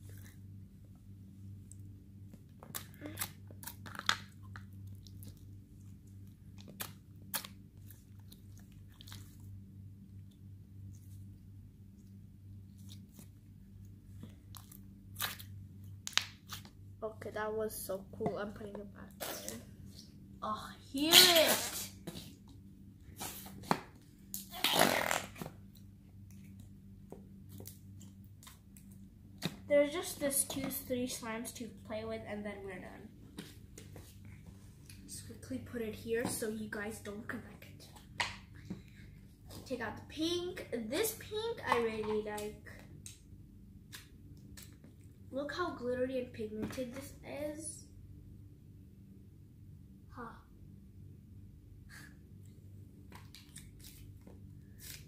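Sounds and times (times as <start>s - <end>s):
steady low hum: 0.0s - 55.0s
slime squelching and crackling: 2.3s - 9.6s, 12.6s - 16.8s.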